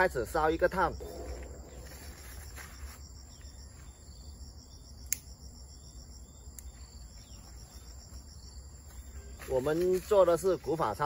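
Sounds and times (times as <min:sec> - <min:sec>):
insects chirping: 0:00.0 - 0:11.0
sharp clicks: 0:05.0 - 0:05.3.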